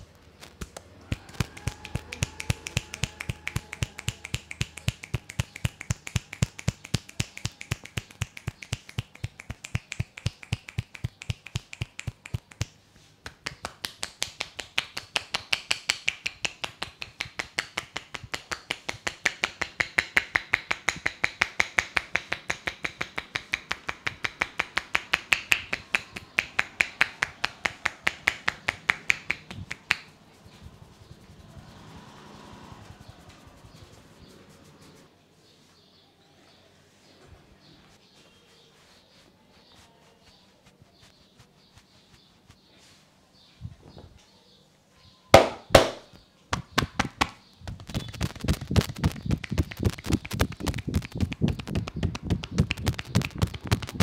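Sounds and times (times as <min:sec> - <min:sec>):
hands striking head: 0:00.5 - 0:30.1, 0:45.4 - 0:54.0.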